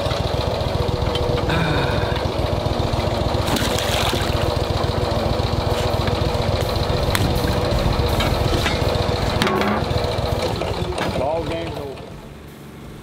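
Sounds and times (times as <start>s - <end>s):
boat motor idling: 0.0s - 13.0s
water splashing: 3.4s - 4.7s.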